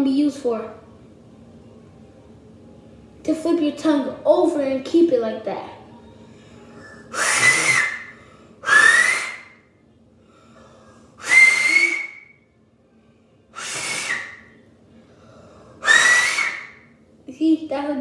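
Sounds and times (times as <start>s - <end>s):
two-finger whistle blasts: 7.1s - 9.6s, 11.2s - 12.4s, 13.6s - 14.5s, 15.8s - 16.8s.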